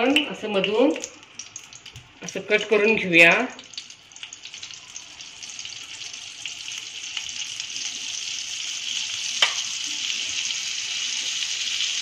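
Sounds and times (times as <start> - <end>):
butter and oil sizzling: 0.0 - 12.0.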